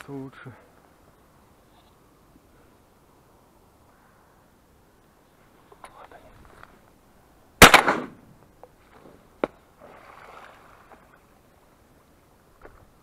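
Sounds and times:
shotgun shot: 0:07.6 - 0:08.2.

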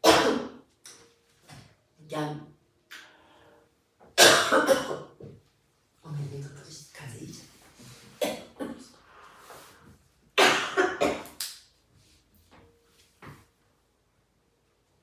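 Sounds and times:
woman coughing: 0:00.0 - 0:00.6, 0:04.2 - 0:05.2, 0:08.2 - 0:09.0, 0:10.4 - 0:11.4.

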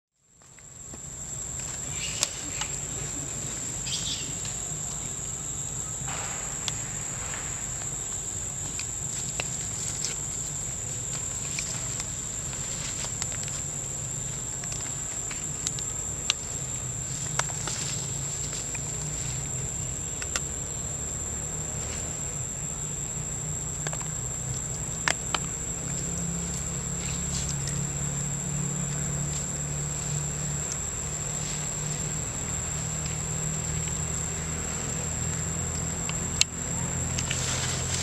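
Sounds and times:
high-pitched insect drone: 0:01.1 - 0:38.0
low rumble: 0:04.4 - 0:12.6.

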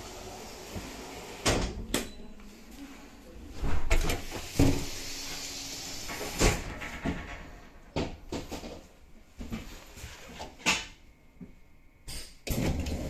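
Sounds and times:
door mechanism hiss and hum: 0:03.8 - 0:06.8.

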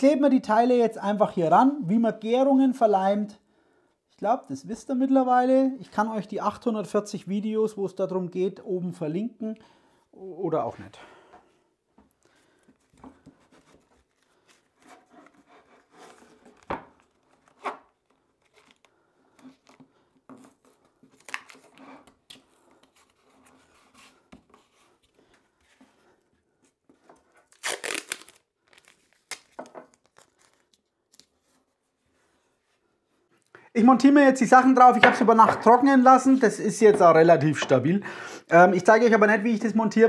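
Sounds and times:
packing tape ripping: 0:21.1 - 0:21.8, 0:27.5 - 0:31.3.

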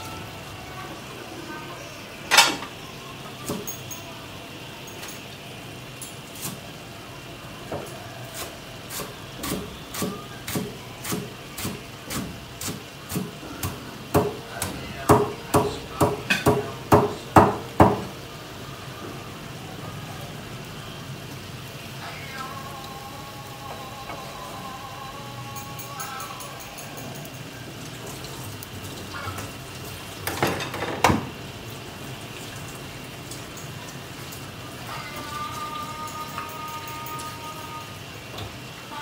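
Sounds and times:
simmering wok hissing: 0:00.0 - 0:30.4.

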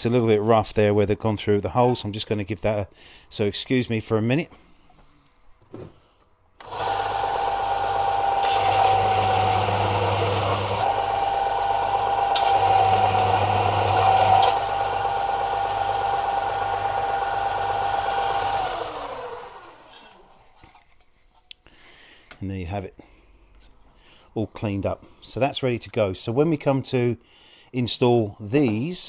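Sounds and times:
bench sander running: 0:06.6 - 0:20.4.

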